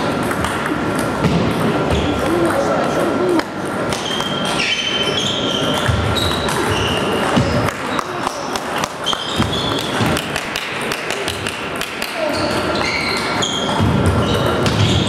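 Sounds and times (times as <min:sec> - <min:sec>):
table tennis balls clicking: 0:00.0 - 0:15.0
shoes squeaking: 0:03.8 - 0:10.4, 0:12.2 - 0:15.0.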